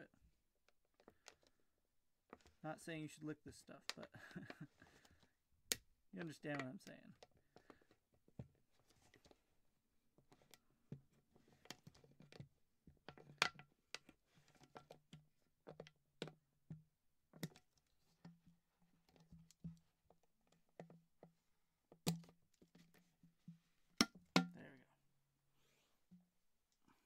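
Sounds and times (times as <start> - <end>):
plastic bottle clicking and crackling: 10.2 - 23.1, 24.0 - 24.6
plastic snapping: 22.0 - 22.4.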